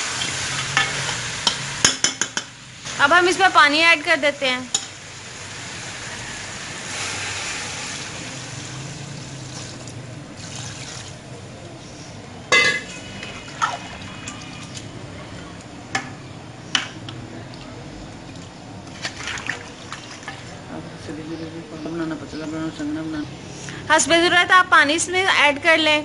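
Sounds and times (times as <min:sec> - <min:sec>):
water pouring into a pot: 0:05.2 - 0:11.2, 0:13.2 - 0:14.9.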